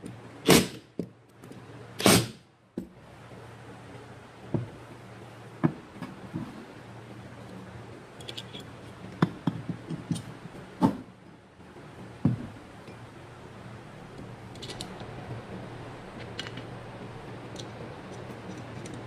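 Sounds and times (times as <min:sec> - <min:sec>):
metal parts knocking and clinking: 0:08.2 - 0:10.3.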